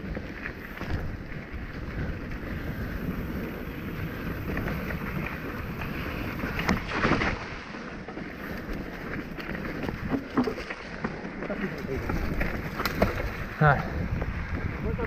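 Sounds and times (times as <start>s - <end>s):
wind buffeting microphone: 0.0s - 7.0s, 11.7s - 15.0s
bike rattling: 0.0s - 15.0s
bike tyres rolling over dirt: 0.0s - 15.0s.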